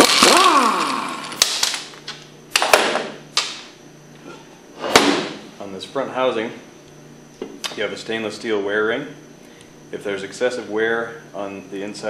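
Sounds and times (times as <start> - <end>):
cordless drill winding down: 0.0 - 1.4.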